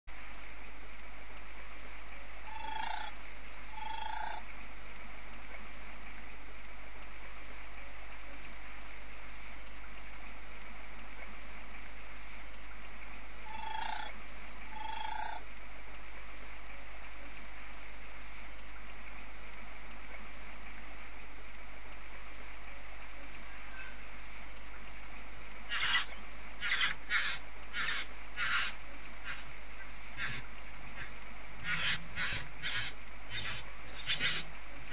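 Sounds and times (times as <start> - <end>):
steady hiss: 0.1 - 34.9
bird harsh buzzy calls: 2.4 - 4.5, 13.4 - 15.5, 25.7 - 34.9.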